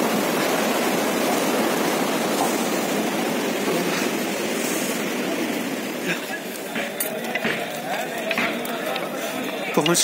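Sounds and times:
stream rushing over rocks: 0.0 - 6.5.

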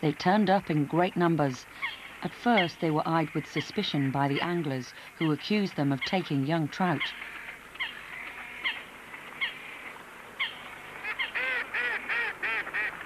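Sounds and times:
water bird calling: 0.5 - 13.0.

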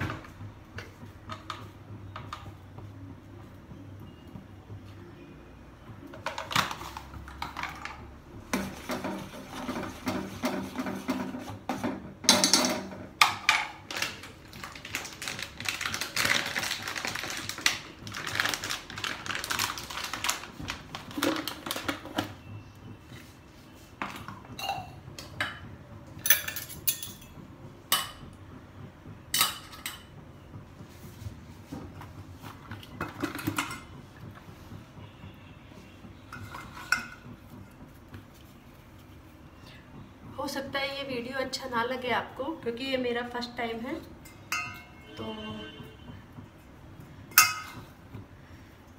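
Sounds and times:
stirring and mixing clinks: 6.1 - 17.8, 24.0 - 28.4, 35.7 - 38.5, 44.1 - 45.8, 47.2 - 48.2
plastic packet crinkling: 13.9 - 22.1
spoon clinking against steel bowls: 24.6 - 25.6, 26.2 - 27.3, 44.2 - 45.2, 47.3 - 47.9.

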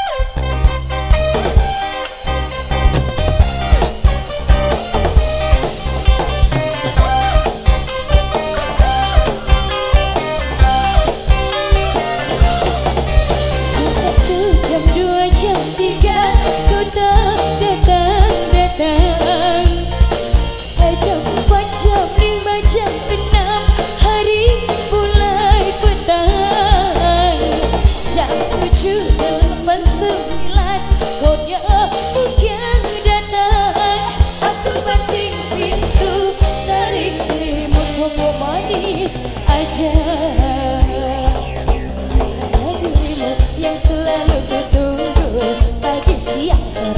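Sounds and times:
bass guitar: 0.0 - 46.9
drum kit steady beat: 0.0 - 46.9
electric guitars: 0.0 - 46.9
woman singing: 13.8 - 20.0, 20.7 - 41.7, 42.4 - 46.9.

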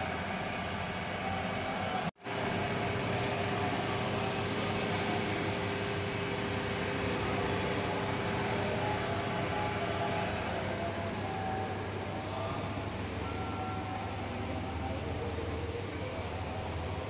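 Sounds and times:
workshop hum and hiss: 0.0 - 17.0
faint steady tones: 7.2 - 17.0.

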